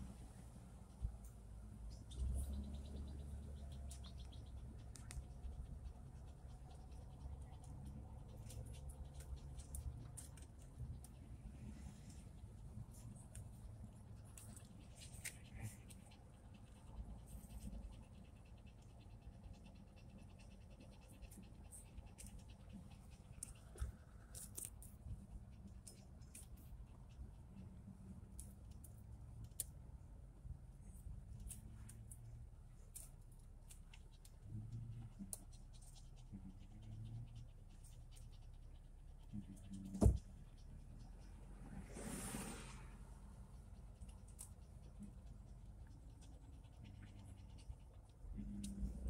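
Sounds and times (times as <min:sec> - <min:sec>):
low rumble of moving car: 0:00.0 - 0:24.2, 0:24.9 - 0:49.0
dog panting: 0:14.7 - 0:24.1
sharp thump: 0:40.0 - 0:40.2.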